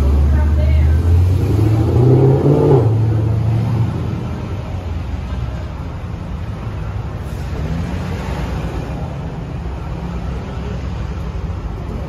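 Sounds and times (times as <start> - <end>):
car engine accelerating: 0.0 - 4.8.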